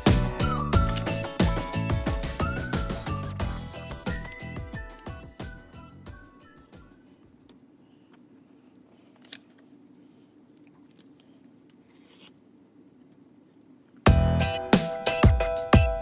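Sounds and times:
background music: 0:00.0 - 0:07.2, 0:14.1 - 0:16.0
low room hum: 0:00.0 - 0:14.7
tape and paper handling: 0:10.9 - 0:12.4.

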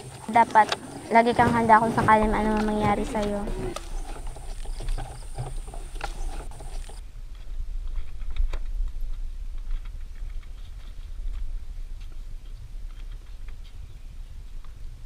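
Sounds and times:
bamboo poles clacking underfoot: 0:00.0 - 0:07.0.

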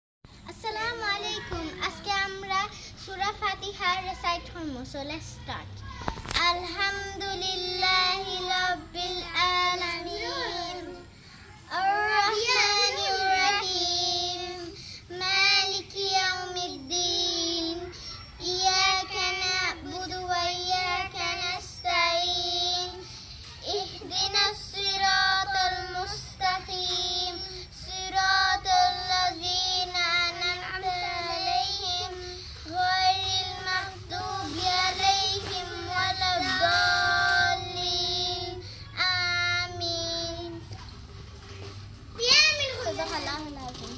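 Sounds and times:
girl chanting recitation: 0:00.4 - 0:23.1.

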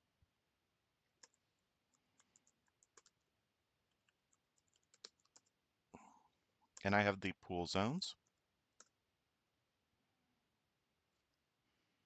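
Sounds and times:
keyboard keys clicking: 0:02.2 - 0:03.2.

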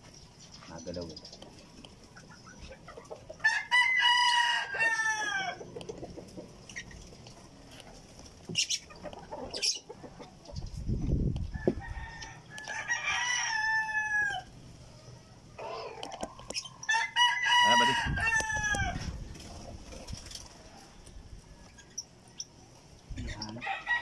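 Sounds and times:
rooster crowing: 0:03.4 - 0:05.6, 0:11.5 - 0:14.5, 0:16.8 - 0:19.2, 0:23.6 - 0:24.0.

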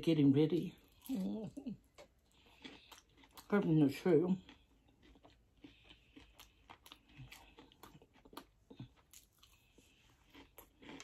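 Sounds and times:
person chewing food: 0:00.6 - 0:11.0.

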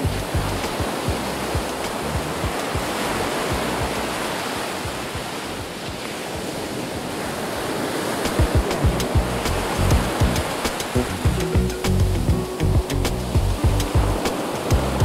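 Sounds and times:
wind buffeting microphone: 0:00.0 - 0:15.0
waves breaking on sand: 0:00.6 - 0:11.3, 0:14.2 - 0:15.0.

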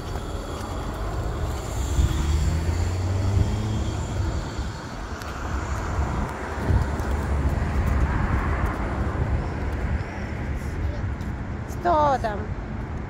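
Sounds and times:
cars passing on street: 0:00.0 - 0:13.0.

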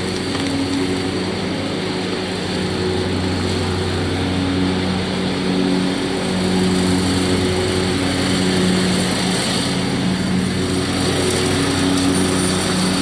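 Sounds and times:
lawn mower engine running: 0:00.0 - 0:13.0.

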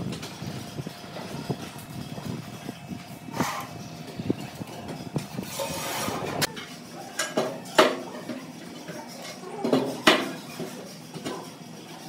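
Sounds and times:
trowel scraping on tile: 0:05.4 - 0:06.5.

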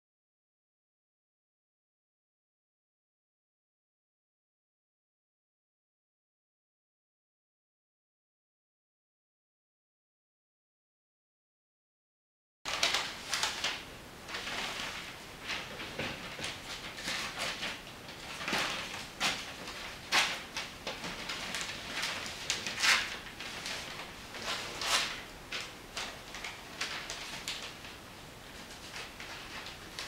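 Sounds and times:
paper rustling: 0:12.7 - 0:30.0.

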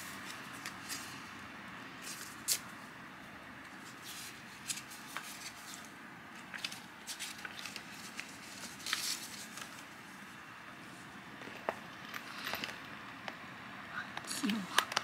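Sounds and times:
paper crackling and rustling: 0:00.0 - 0:01.3, 0:03.7 - 0:10.4
low room hiss: 0:00.0 - 0:15.0.

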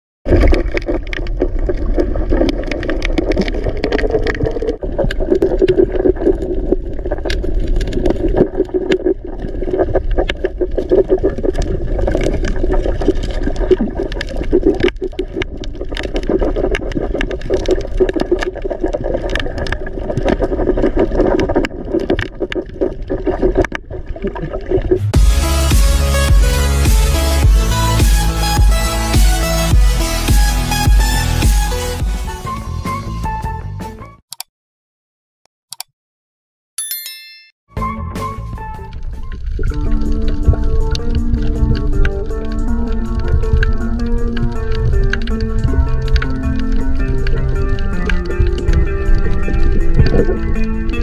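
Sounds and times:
underwater clicks and crackles: 0:00.3 - 0:25.0, 0:39.1 - 0:51.0
muffled underwater rush: 0:00.3 - 0:25.1.

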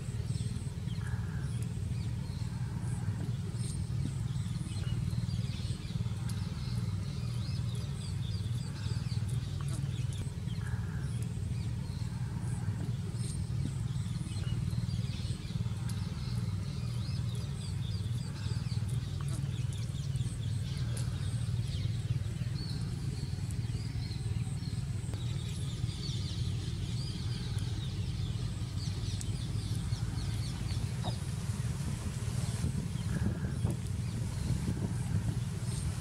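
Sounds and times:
birds chirping faintly: 0:00.0 - 0:36.0
low outdoor rumble: 0:00.0 - 0:36.0.

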